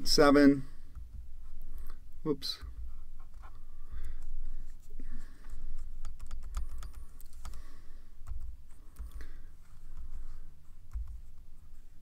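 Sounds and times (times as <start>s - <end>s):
keyboard clicks: 5.8s - 7.6s.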